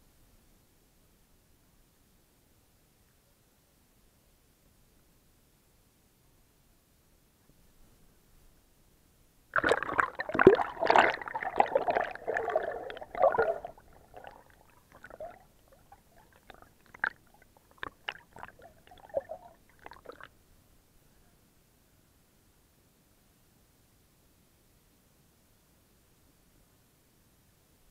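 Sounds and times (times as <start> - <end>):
bubbling pops underwater: 9.6 - 20.3
churning water: 9.6 - 20.3
water sloshing and gurgling: 9.6 - 20.3.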